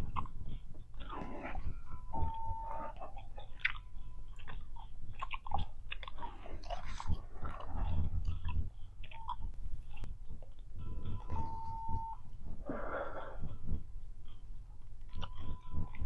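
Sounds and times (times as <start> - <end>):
gum chewing smacks: 0.0 - 11.2, 14.8 - 16.0.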